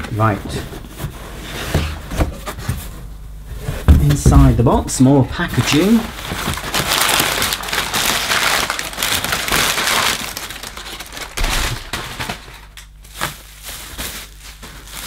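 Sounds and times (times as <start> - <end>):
bubble wrap handling: 4.0 - 15.0
packing paper rustling and crackling: 4.0 - 15.0.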